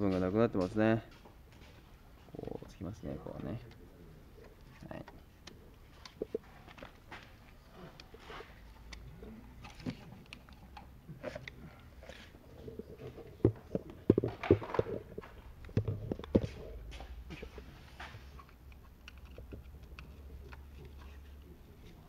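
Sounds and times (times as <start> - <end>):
clicks knocks and rubbing: 4.4 - 22.0.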